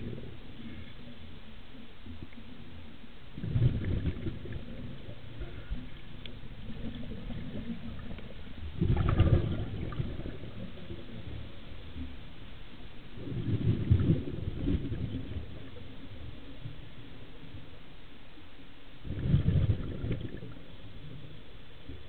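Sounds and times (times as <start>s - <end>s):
underwater bubbling exhale: 3.3s - 17.8s, 19.0s - 22.0s.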